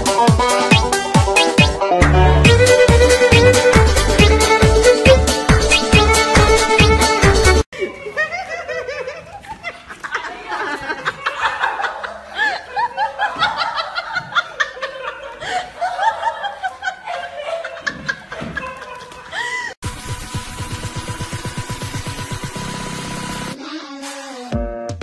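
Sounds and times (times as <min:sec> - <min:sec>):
electronic music with a beat: 0:00.0 - 0:07.6
people laughing: 0:07.7 - 0:19.8.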